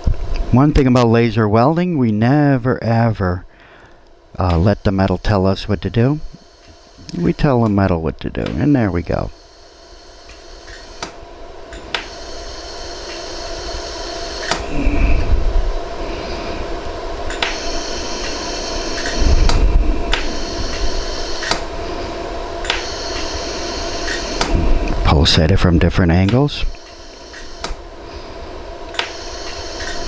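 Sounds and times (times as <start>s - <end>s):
steady machine hum: 0.0s - 30.0s
laser welder snapping: 6.3s - 7.8s, 9.4s - 14.7s, 17.3s - 21.8s, 22.6s - 24.6s, 26.2s - 27.8s, 28.9s - 30.0s
brief low rumbles: 19.1s - 22.2s.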